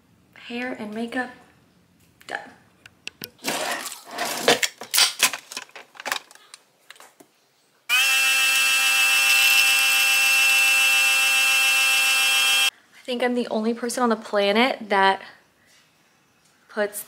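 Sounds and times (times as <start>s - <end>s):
clicks and knocks of handling: 4.5s - 7.3s
coffee machine high-pitched hum: 7.9s - 12.7s.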